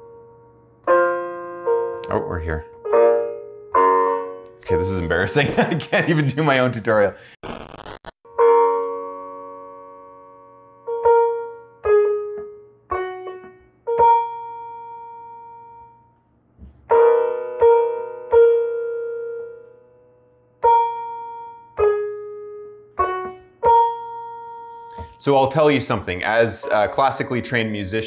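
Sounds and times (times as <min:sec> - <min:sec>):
digital piano notes and chords: 0:00.0 - 0:07.0, 0:07.7 - 0:28.0.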